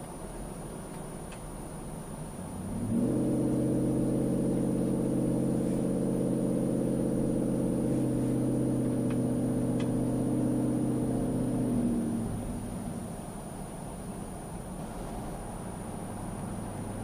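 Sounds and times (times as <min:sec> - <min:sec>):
exhaust drone: 0:00.0 - 0:17.0.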